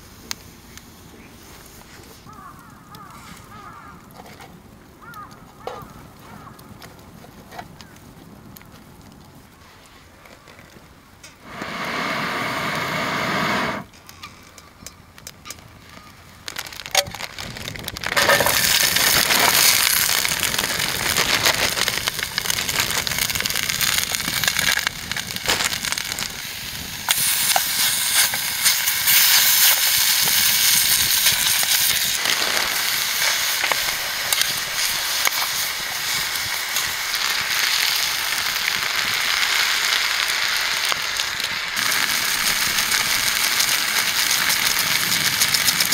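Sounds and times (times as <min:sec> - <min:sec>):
campfire wood crackling: 0:00.0 - 0:45.9
food sizzling in a pan: 0:18.2 - 0:45.9.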